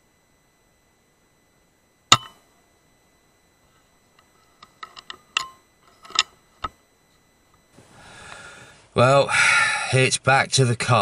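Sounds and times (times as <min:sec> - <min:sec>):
small sharp clicks and knocks: 0:04.1 - 0:06.8.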